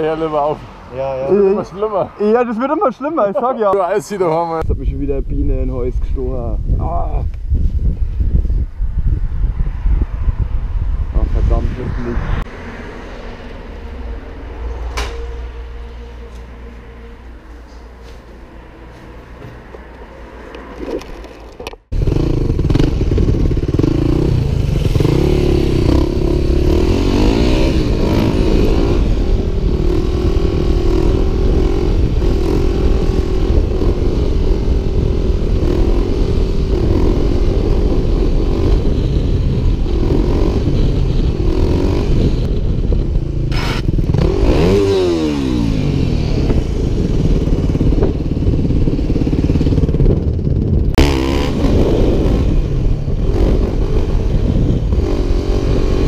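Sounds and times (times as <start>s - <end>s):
wind rushing over microphone: 4.1s - 17.5s, 18.6s - 56.0s
motorcycle engine running: 21.9s - 56.0s.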